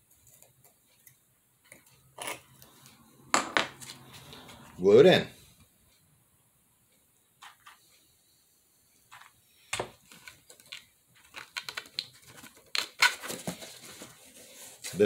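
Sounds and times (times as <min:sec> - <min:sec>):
cardboard tapping and rustling: 0:10.5 - 0:14.2.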